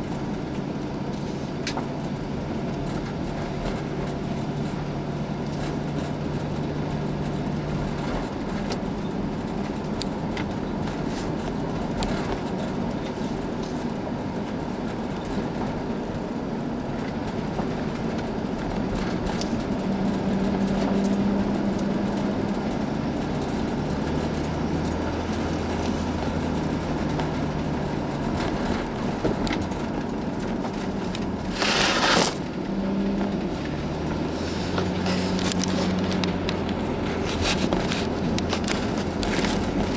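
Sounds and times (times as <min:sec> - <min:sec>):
car engine hum: 0:00.0 - 0:39.9
tyre noise: 0:17.1 - 0:39.9.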